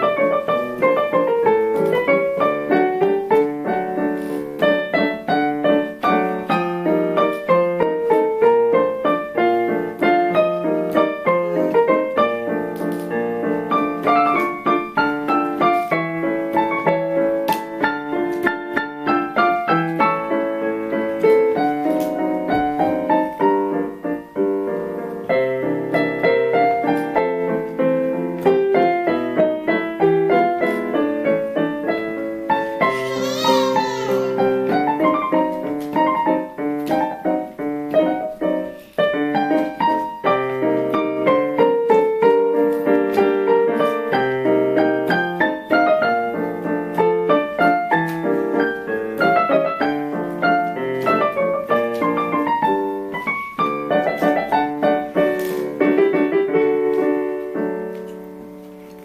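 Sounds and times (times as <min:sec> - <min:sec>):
piano waltz: 0:00.0 - 0:59.0
baby squealing: 0:32.9 - 0:34.5.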